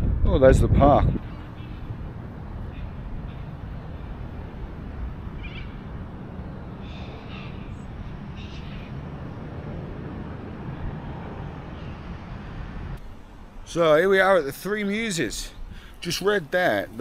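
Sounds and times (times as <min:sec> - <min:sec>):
wind noise on microphone: 0:00.0 - 0:13.7
high bird calls: 0:01.2 - 0:09.3.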